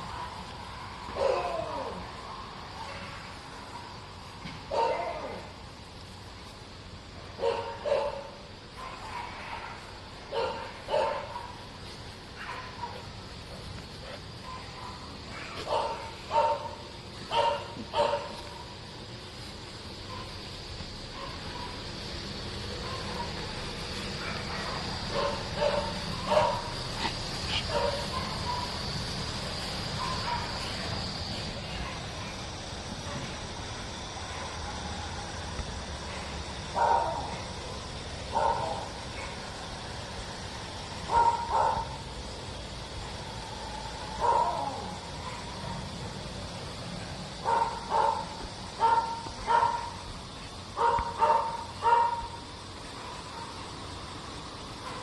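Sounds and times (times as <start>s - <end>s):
dog barking: 1.2s - 1.6s, 4.7s - 5.4s, 7.4s - 11.6s, 14.4s - 18.6s, 20.1s - 20.4s, 21.1s - 21.8s, 22.7s - 28.9s, 30.0s - 31.0s, 31.7s - 32.4s, 36.7s - 37.4s, 38.3s - 39.4s, 41.0s - 42.0s, 44.2s - 45.8s, 47.4s - 50.0s, 50.8s - 52.4s.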